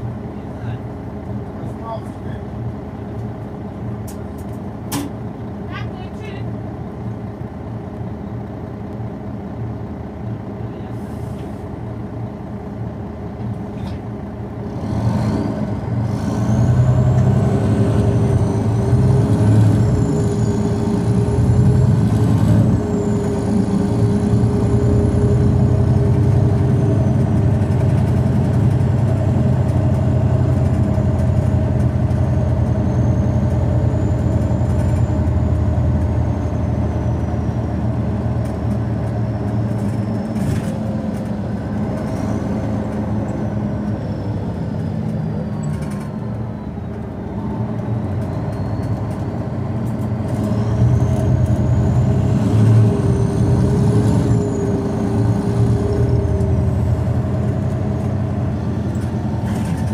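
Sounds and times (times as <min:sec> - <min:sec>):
bus diesel engine: 0:00.0 - 0:59.9.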